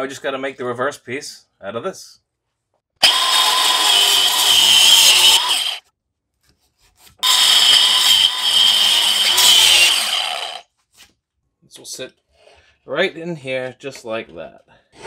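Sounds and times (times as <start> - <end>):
angle grinder cutting plastic: 3.0 - 5.8, 7.2 - 10.7.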